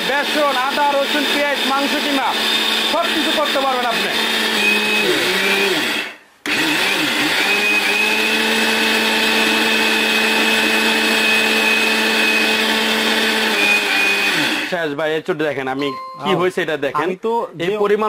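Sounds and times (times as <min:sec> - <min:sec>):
mixer grinder motor whine: 0:00.0 - 0:14.7.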